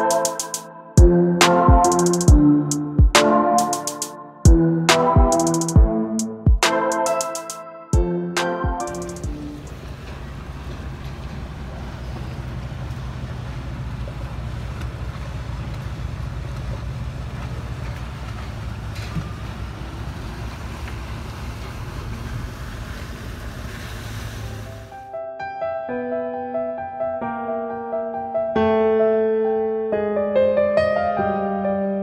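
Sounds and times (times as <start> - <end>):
boat engine droning: 8.8 - 25.0
water rushing: 12.4 - 25.0
wind hiss: 20.2 - 24.9.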